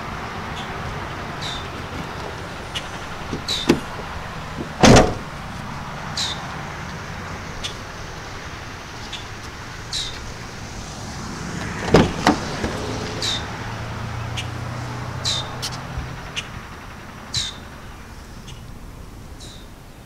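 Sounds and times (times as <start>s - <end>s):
car tailgate slamming: 1.4s - 5.5s, 11.5s - 13.0s
car door latch clicking: 1.5s - 5.4s, 11.6s - 12.9s.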